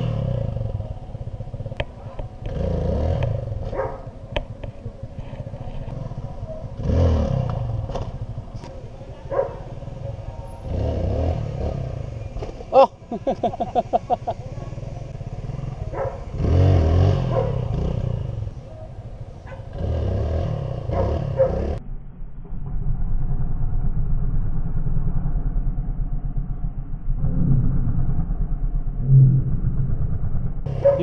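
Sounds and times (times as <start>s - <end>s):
dirt bike engine revving: 0.0s - 0.9s, 2.4s - 4.0s, 5.8s - 8.6s, 9.2s - 18.6s, 19.4s - 21.8s.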